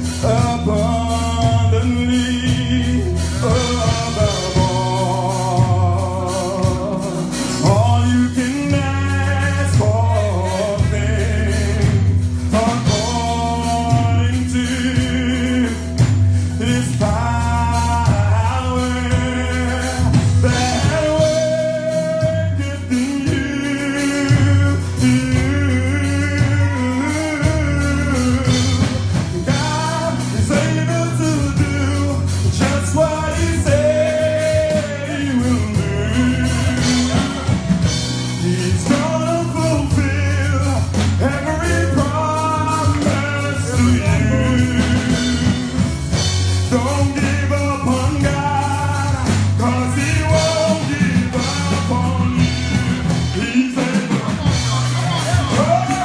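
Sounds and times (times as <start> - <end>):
band with bass and guitar: 0.0 - 56.0
man singing lead: 0.0 - 56.0
choir singing: 36.1 - 38.0.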